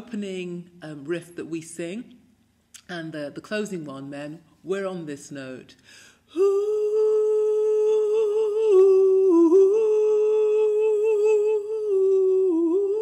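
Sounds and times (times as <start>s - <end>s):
woman humming a held note: 6.4s - 13.0s.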